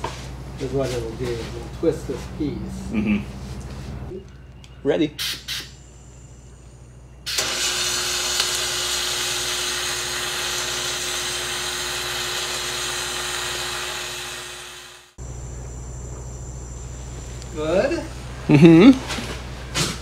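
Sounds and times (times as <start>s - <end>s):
faint hum: 0.4s - 7.4s, 15.2s - 20.0s
welding arc hissing: 5.2s - 5.9s, 7.3s - 17.8s.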